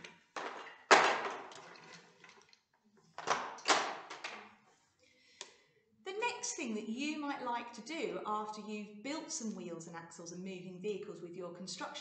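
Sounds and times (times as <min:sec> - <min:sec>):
toy pieces clattering into tray: 0:00.0 - 0:02.0.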